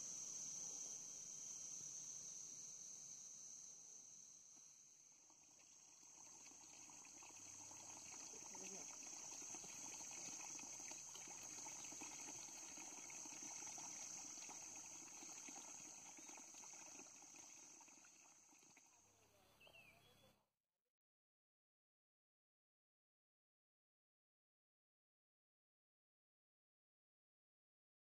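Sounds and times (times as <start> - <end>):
crickets chirring: 5.6 - 18.9.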